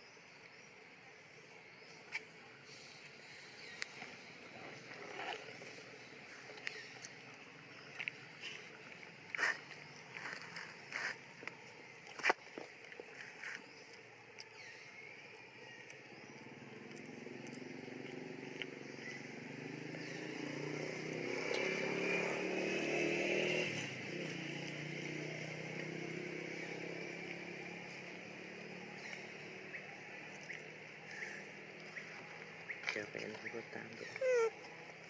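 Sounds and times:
vehicle engine passing: 16.5s - 34.9s.

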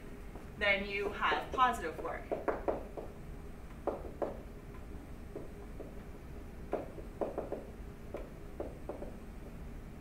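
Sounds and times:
low steady hum: 0.0s - 10.0s
stylus tapping on tablet: 1.9s - 9.6s.

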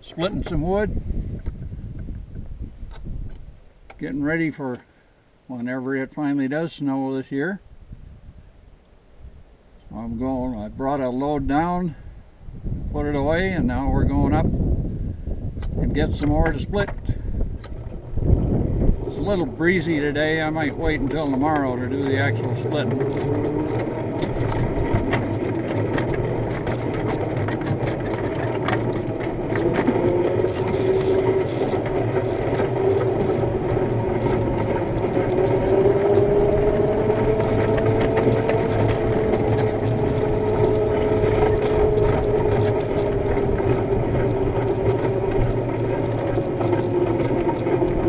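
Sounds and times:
wheels clicking and rattling: 13.2s - 48.0s
miniature train motor whine: 21.2s - 48.0s.

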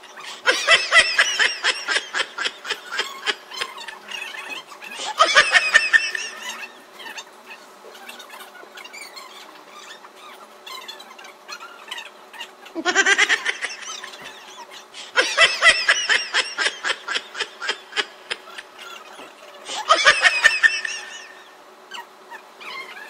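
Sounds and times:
person laughing: 0.4s - 4.1s, 5.0s - 6.7s, 12.8s - 14.3s, 15.0s - 18.8s, 19.7s - 21.4s.

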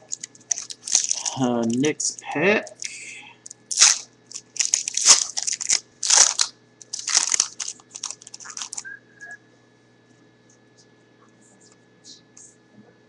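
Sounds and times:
wrapper crinkling and tearing: 0.0s - 8.8s.

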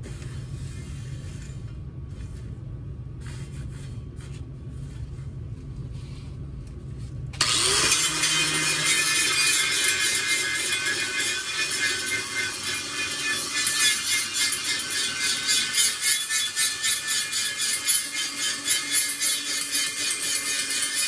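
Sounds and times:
low steady hum: 0.0s - 17.3s
angle grinder grinding steel: 7.4s - 21.0s.

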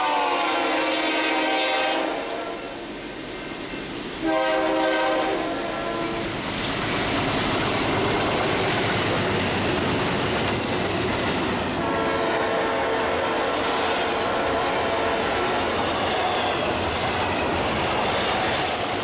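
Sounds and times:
train air horn chord: 0.0s - 2.8s, 4.2s - 6.3s, 11.8s - 13.4s, 14.1s - 15.5s
freight train rumbling past: 0.0s - 19.0s.

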